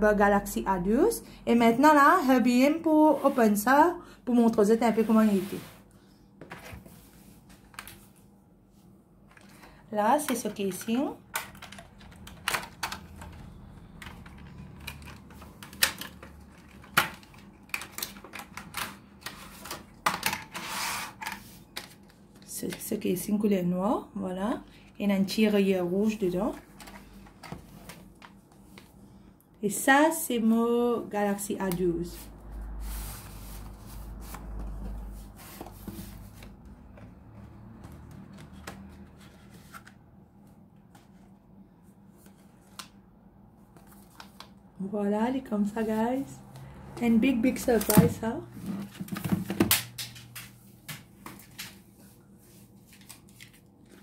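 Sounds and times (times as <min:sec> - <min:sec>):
cardboard box sliding and rubbing: 0:04.9 - 0:05.9, 0:32.8 - 0:36.4.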